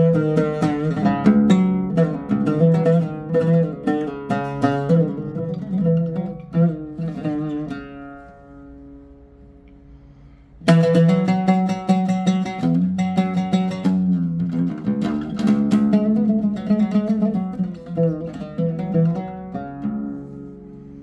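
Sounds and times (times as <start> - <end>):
oud plucked improvisation: 0.0 - 21.0.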